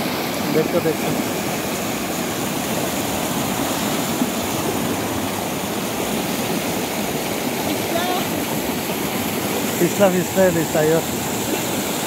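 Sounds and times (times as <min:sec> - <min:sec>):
river rushing over rocks: 0:00.0 - 0:12.0.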